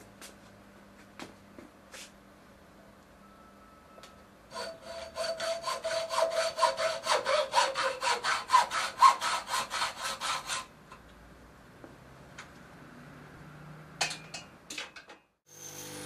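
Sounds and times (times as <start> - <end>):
hacksaw cutting steel tube: 4.5 - 10.7.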